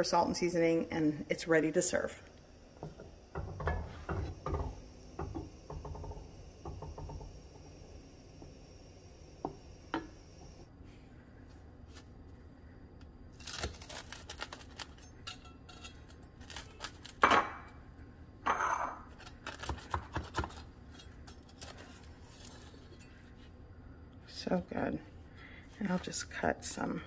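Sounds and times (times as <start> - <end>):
knife crunching through bread crust: 13.4 - 15.0.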